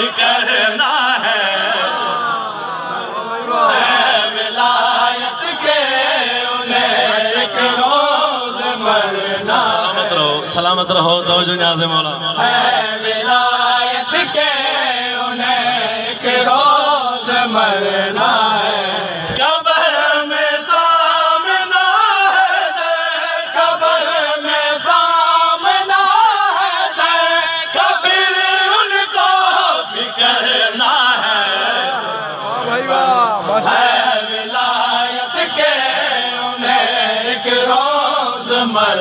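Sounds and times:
men singing a lamentation chant: 0:00.0 - 0:39.0
voice through loudspeakers: 0:09.6 - 0:12.5, 0:31.8 - 0:33.9.

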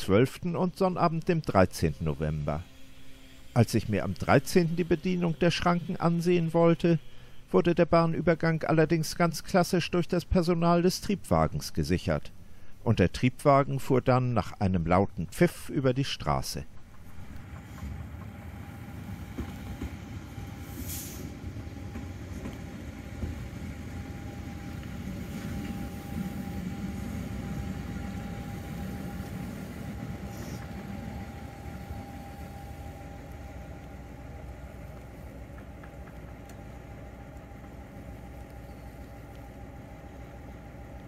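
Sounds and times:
railcar engine rumble: 0:00.0 - 0:09.7, 0:16.6 - 0:41.0
steady hum: 0:16.8 - 0:41.0
brief hiss: 0:20.6 - 0:21.4.

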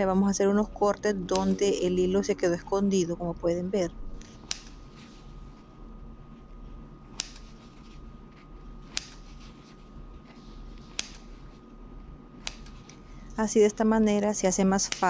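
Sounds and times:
scissors snipping twine: 0:01.2 - 0:01.8, 0:04.2 - 0:05.1, 0:07.1 - 0:09.8, 0:10.8 - 0:11.4, 0:12.4 - 0:13.0, 0:14.8 - 0:15.0.

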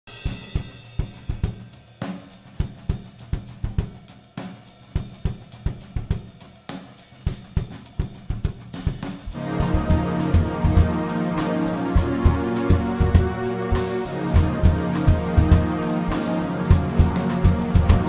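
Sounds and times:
drum kit beat: 0:00.1 - 0:18.0.

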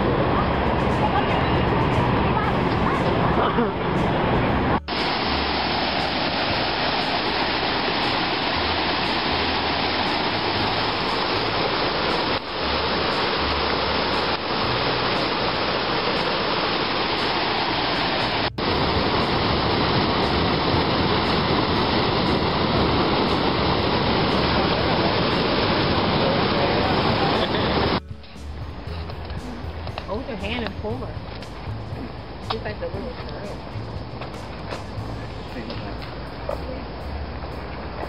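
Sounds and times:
river rapids and waterfall roar: 0:00.0 - 0:28.0.

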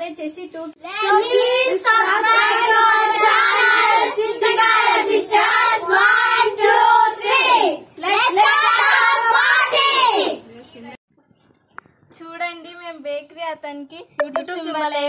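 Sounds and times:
children singing in unison: 0:01.0 - 0:10.2.

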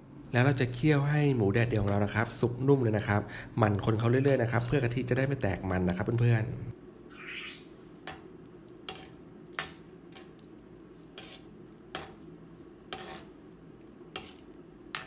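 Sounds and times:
low steady background noise: 0:00.0 - 0:15.0
metal ladle scraping a wok: 0:11.2 - 0:12.1, 0:12.9 - 0:13.3, 0:14.1 - 0:14.4.

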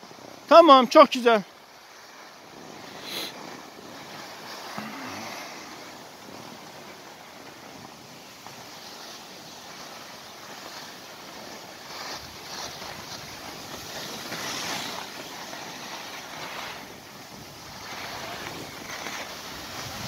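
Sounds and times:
skis scraping over snow: 0:00.0 - 0:20.0
wind on microphone: 0:16.7 - 0:20.0.

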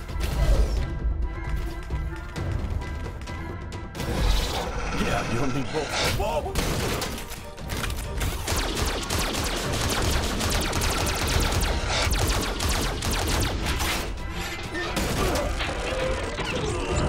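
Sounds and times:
action music: 0:00.0 - 0:17.0
rapid gunfire: 0:06.5 - 0:07.3, 0:08.2 - 0:14.2.

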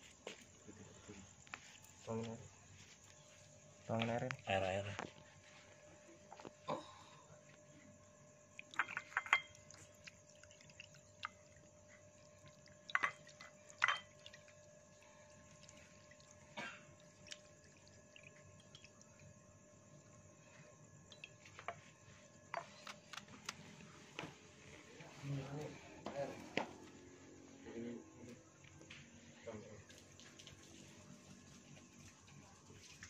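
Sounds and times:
faint steady hum: 0:00.0 - 0:33.0
water dripping and splashing: 0:08.6 - 0:19.3, 0:21.1 - 0:21.7, 0:29.8 - 0:33.0.

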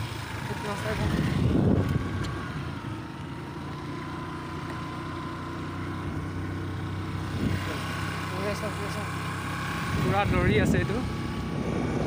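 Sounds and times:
motorcycle engine: 0:00.0 - 0:12.0
scooter engine running: 0:00.0 - 0:12.0
wind on microphone: 0:01.1 - 0:02.4, 0:09.9 - 0:12.0.

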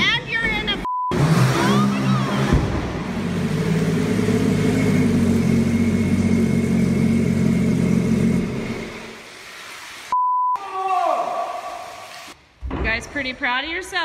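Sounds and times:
small boat engine running: 0:03.3 - 0:09.2.

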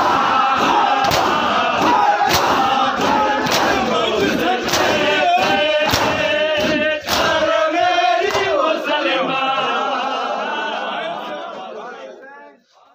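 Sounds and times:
crowd of men chanting: 0:00.0 - 0:12.9
hands slapping bare chests: 0:00.6 - 0:07.5, 0:08.2 - 0:08.6.

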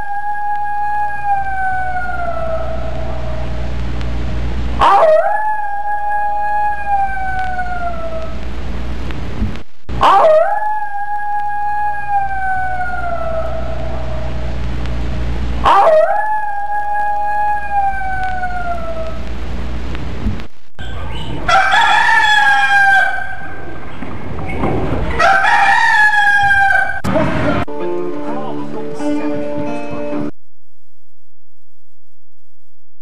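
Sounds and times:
long howls: 0:00.0 - 0:03.8, 0:04.8 - 0:08.4, 0:10.0 - 0:14.6, 0:15.6 - 0:19.2, 0:21.2 - 0:23.8, 0:25.2 - 0:27.0
steady low hum: 0:00.0 - 0:21.7.

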